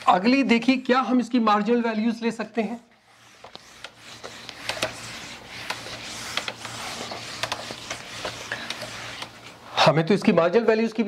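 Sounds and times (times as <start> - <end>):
eraser rubbing on whiteboard: 3.0 - 9.6.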